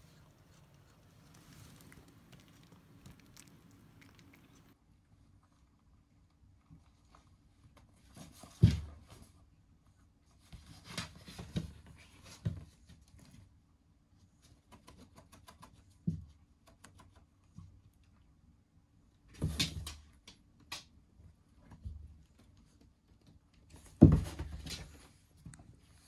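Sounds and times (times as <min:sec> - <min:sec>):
cats scuffling: 0:00.0 - 0:04.8, 0:06.8 - 0:09.5, 0:10.3 - 0:13.5, 0:19.3 - 0:26.0.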